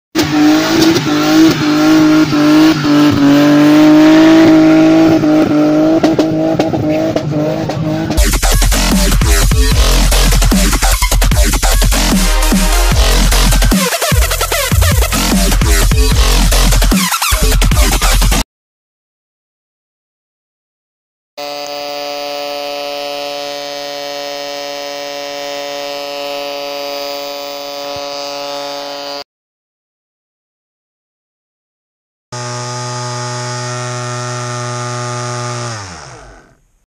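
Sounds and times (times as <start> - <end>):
car engine revving high: 0.2 - 18.2, 21.4 - 29.2, 32.4 - 36.6
electronic dance music: 0.2 - 18.4
small electric motor humming: 21.4 - 29.2, 32.4 - 36.6.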